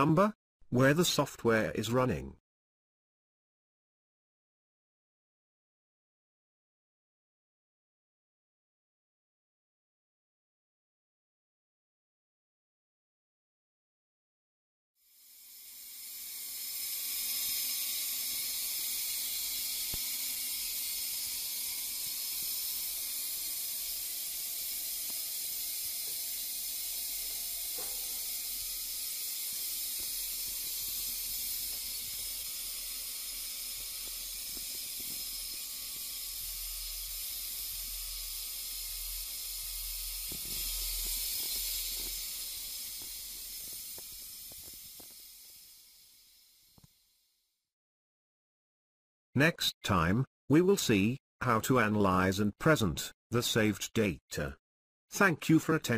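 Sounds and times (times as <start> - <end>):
high-pitched test signal hiss: 15.2 - 47.2.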